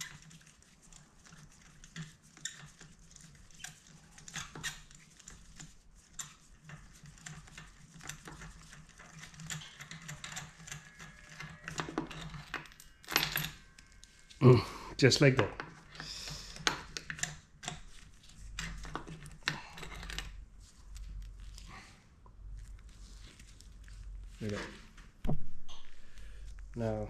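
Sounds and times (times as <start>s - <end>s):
hand tools clicking and scraping: 6.1s - 14.6s.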